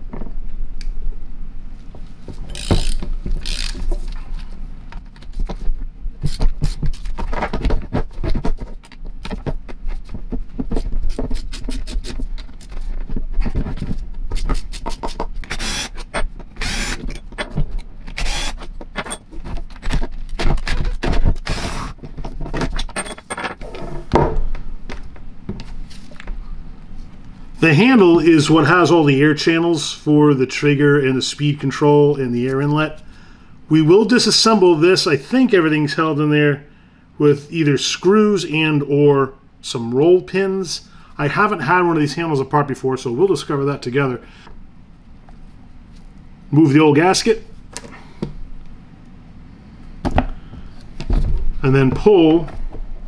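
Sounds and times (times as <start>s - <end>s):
ratchet clicking: 2.5s - 3.8s.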